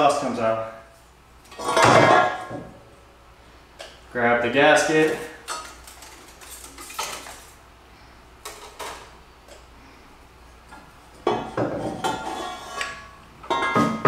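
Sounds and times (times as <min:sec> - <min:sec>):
metal clanking and scraping: 0:01.5 - 0:02.8, 0:11.2 - 0:14.0.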